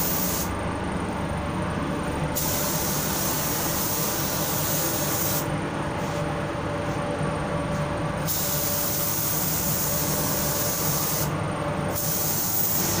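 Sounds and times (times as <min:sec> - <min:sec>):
spray gun hissing: 0:02.4 - 0:05.5, 0:08.3 - 0:11.3, 0:12.0 - 0:13.0.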